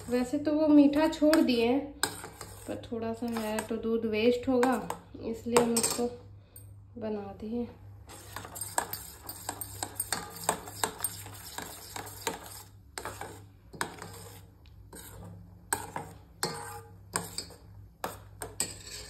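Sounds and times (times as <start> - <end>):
spoon scraping steel bowl: 0.0 - 3.8, 4.6 - 5.0, 8.1 - 19.0.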